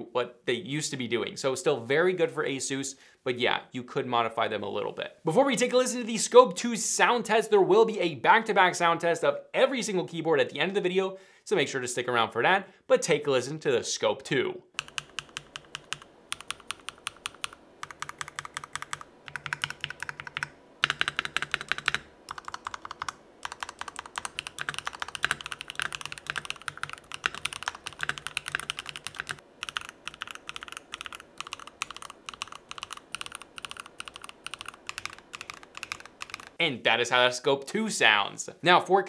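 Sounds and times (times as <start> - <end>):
mechanical keyboard typing: 14.8 - 36.6.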